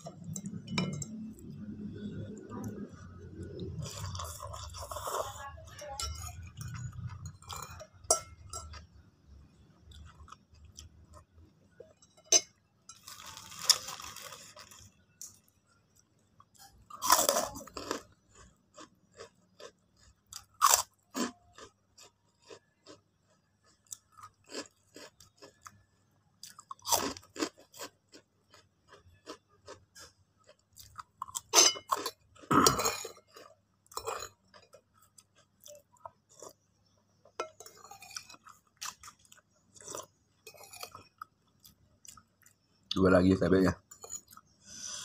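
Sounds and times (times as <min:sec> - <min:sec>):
chewing crunches: 0:13.0 - 0:15.0, 0:16.5 - 0:42.6.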